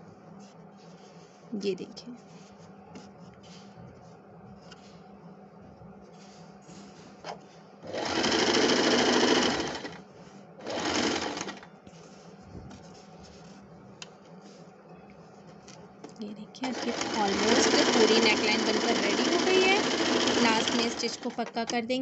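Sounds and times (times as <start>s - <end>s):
electric sewing machine running: 7.8s - 10.0s, 10.6s - 11.7s, 16.6s - 21.5s.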